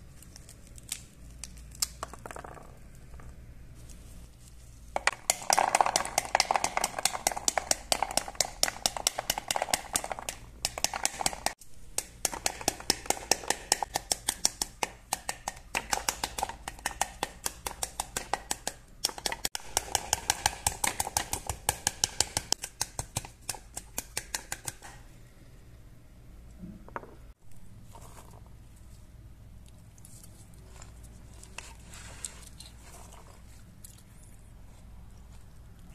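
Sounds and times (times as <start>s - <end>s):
tapping on pomegranate rind: 5.0s - 25.0s.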